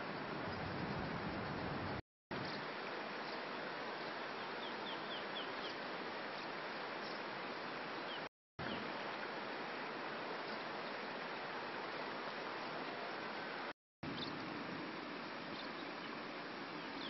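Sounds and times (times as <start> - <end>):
river water rushing: 2.6 - 17.0
bird chirping: 14.1 - 14.4.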